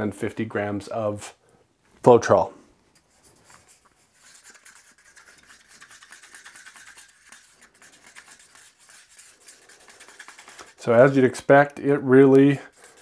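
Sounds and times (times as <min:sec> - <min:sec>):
stick scraping paint cup: 0:03.0 - 0:13.0.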